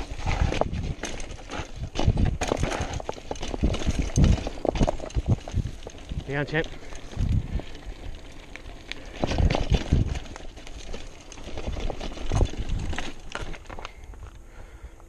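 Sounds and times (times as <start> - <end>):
heavy bike thumps: 0.0 - 5.9
tyre noise on dirt: 0.0 - 14.8
mountain bike rattling: 0.0 - 14.9.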